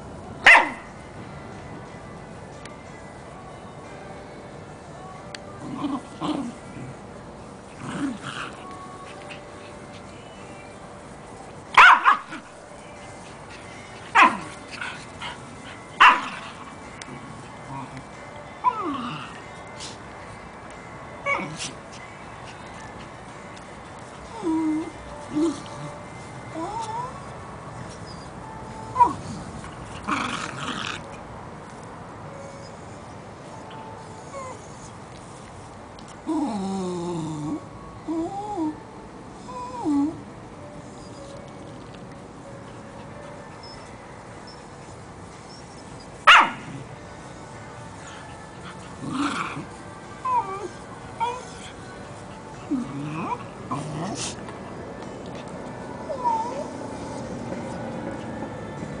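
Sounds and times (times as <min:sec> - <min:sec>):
dog yipping: 0:00.5 - 0:00.8, 0:11.8 - 0:12.4, 0:16.0 - 0:16.4, 0:45.5 - 0:46.6
small dog barking sharply: 0:00.5 - 0:00.8, 0:46.3 - 0:46.6
dog growling: 0:07.8 - 0:08.6, 0:30.0 - 0:31.1, 0:49.0 - 0:49.7, 0:52.7 - 0:54.4.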